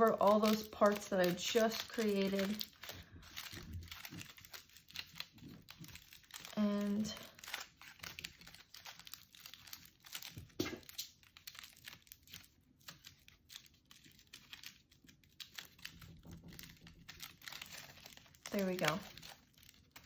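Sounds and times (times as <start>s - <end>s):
aluminium foil crinkling: 0.0s - 20.0s.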